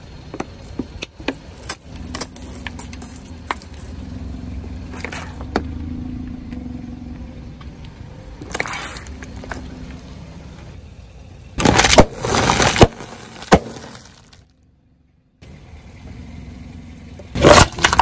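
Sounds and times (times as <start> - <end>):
low car engine rumble: 0.0 - 18.0
sharp crack: 11.6 - 14.4, 17.4 - 18.0
tyre crushing packaging and snacks: 11.6 - 14.5, 17.4 - 18.0.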